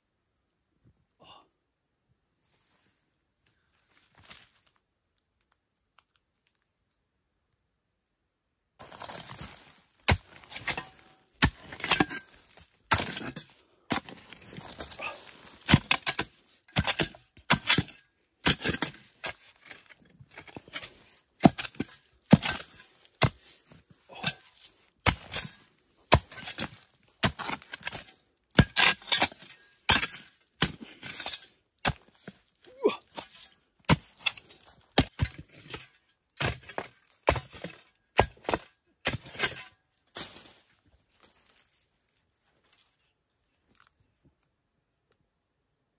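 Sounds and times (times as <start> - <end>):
metal spade chopping into hard earth: 8.8 - 32.5, 33.1 - 40.3
loose soil scattering: 8.8 - 40.7.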